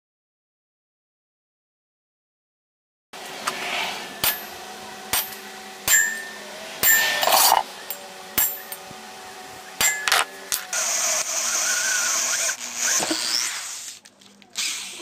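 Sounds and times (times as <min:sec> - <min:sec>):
low hum: 0:03.2 - 0:13.5
metal scraping rattle: 0:03.4 - 0:08.9
metallic clinks and knocks: 0:05.2 - 0:08.9, 0:09.8 - 0:10.7.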